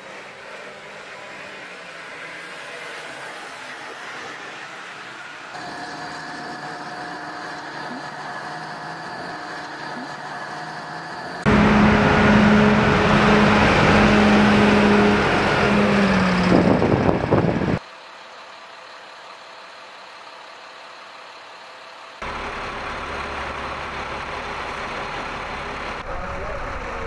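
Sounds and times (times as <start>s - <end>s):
truck diesel engine droning: 0.0s - 27.0s
low engine rumble: 5.6s - 27.0s.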